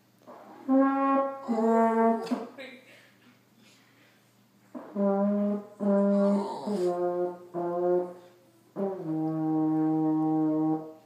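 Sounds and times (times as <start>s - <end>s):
french horn playing: 0.2s - 2.5s, 4.7s - 11.0s.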